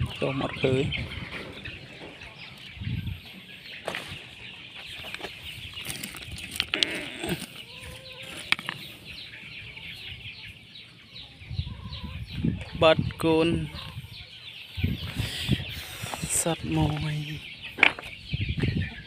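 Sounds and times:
crushed stone clicking and scraping: 5.0s - 8.9s.

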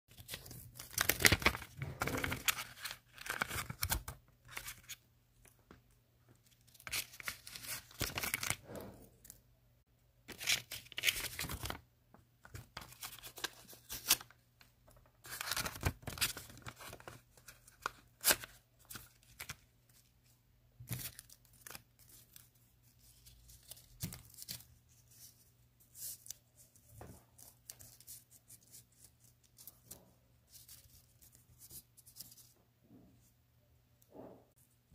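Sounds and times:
paper tearing and rustling: 0.1s - 5.0s.

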